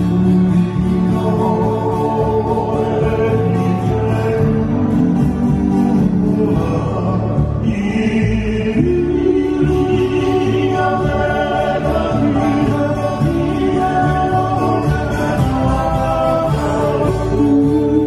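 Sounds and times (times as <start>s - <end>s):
electric bass: 0.0s - 18.0s
strummed acoustic guitar: 0.0s - 18.0s
trio singing in harmony: 0.0s - 18.0s
ukulele: 0.0s - 18.0s.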